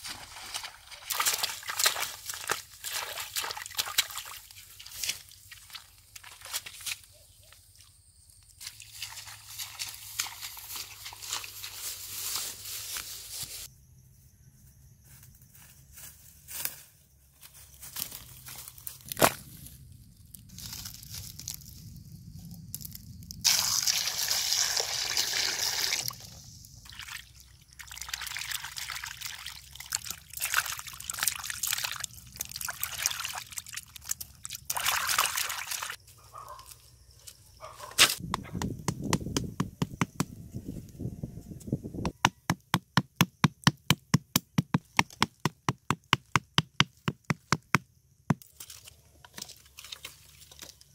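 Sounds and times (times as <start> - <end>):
water sloshing in a pot: 26.9 - 35.9
fast sharp knocks: 42.0 - 47.8.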